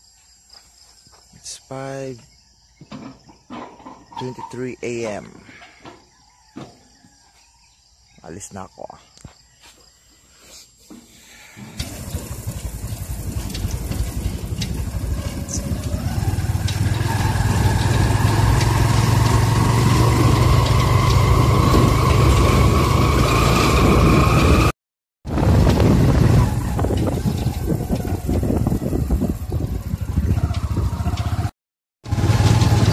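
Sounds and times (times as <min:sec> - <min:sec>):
road noise: 0:11.1 - 0:24.7, 0:25.3 - 0:32.9
vehicle engine accelerating: 0:11.6 - 0:32.9.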